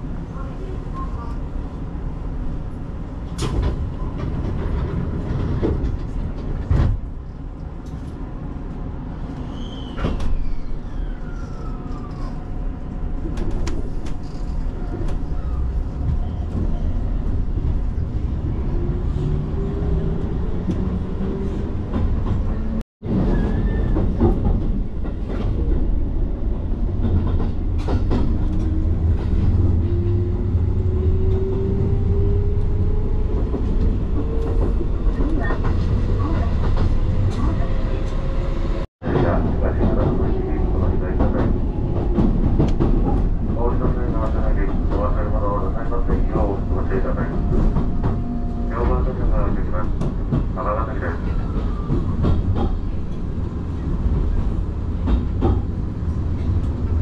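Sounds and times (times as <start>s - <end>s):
train wheels rumbling: 0.4s - 57.0s.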